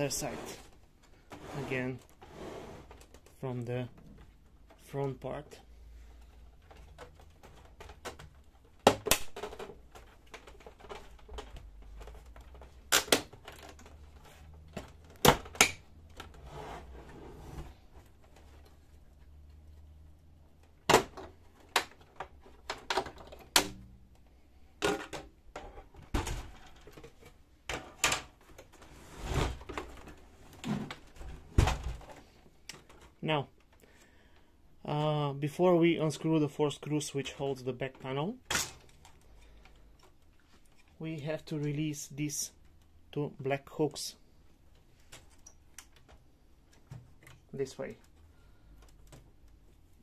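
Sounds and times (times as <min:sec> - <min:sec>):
plastic clips clicking and snapping: 0:06.5 - 0:14.0.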